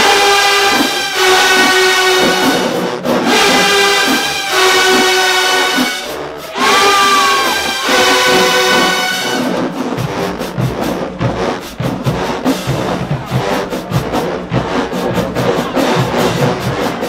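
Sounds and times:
brass section holding chord: 0.0s - 10.3s
drumline playing fast beat: 0.0s - 17.0s.

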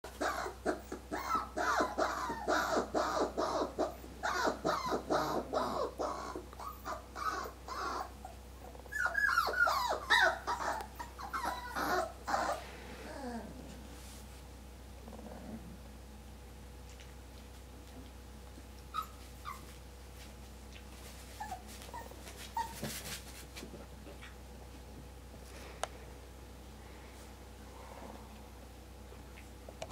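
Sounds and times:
puppy yelping: 0.1s - 13.4s, 18.9s - 19.8s, 21.4s - 22.9s.

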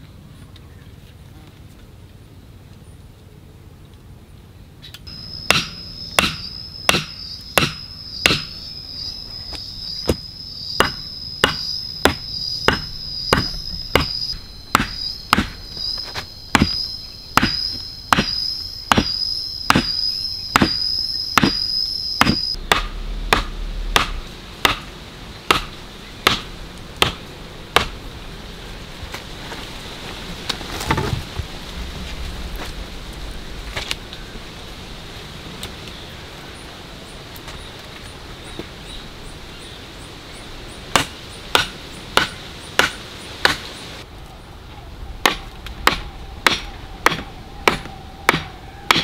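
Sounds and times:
insect buzzing: 5.1s - 29.0s
hand tool chopping wood: 5.5s - 8.5s, 10.8s - 16.8s, 17.4s - 20.0s, 20.6s - 24.9s, 25.5s - 27.2s, 27.8s - 28.0s, 40.9s - 43.6s, 45.2s - 49.0s.

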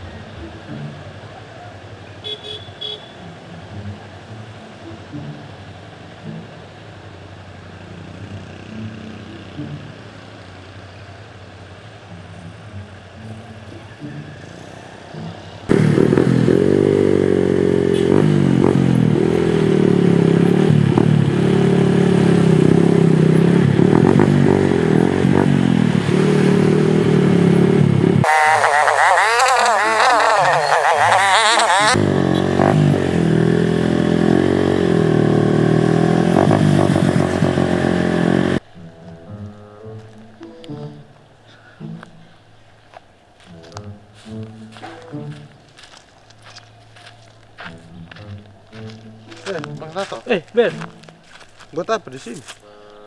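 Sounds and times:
faint road traffic: 0.0s - 53.0s
motorcycle exhaust revving: 14.0s - 38.6s.

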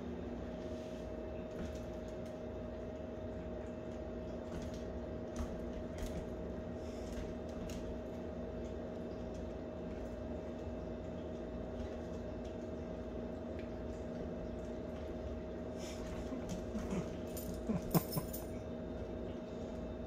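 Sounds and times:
steady electrical hum: 0.0s - 20.0s.

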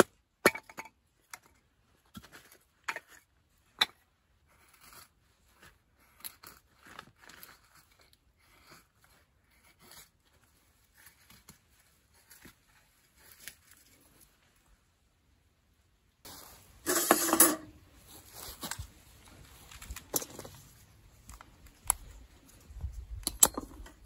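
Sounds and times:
wooden sticks clacking and scraping: 16.3s - 24.0s.

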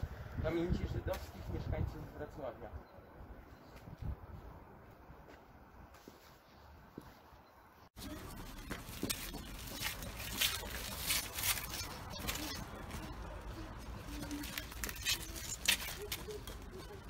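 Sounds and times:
footsteps scuffing on pavement: 3.6s - 7.3s, 8.0s - 17.0s.

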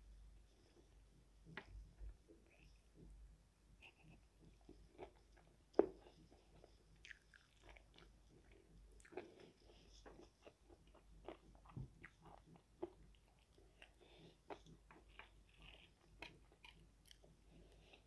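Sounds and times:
person chewing crispy food: 3.8s - 18.0s.

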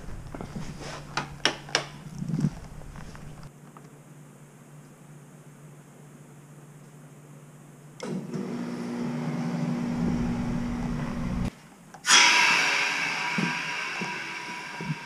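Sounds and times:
heater blower fan humming: 8.0s - 11.5s
loud rushing noise: 12.1s - 15.0s.

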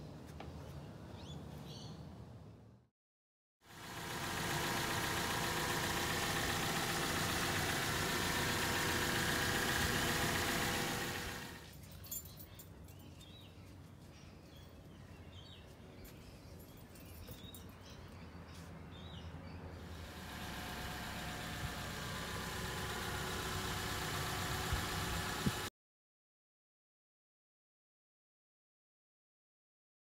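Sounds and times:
loud machine running: 3.8s - 11.6s.

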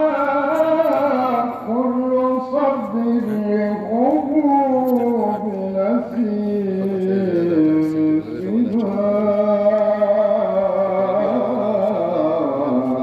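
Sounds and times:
man chanting into a microphone: 0.0s - 13.0s.

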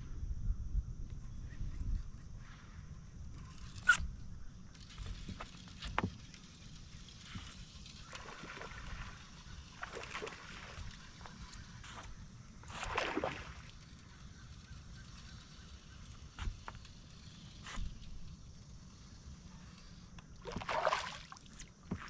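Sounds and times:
fishing reel clicks and knocks: 3.0s - 9.8s.

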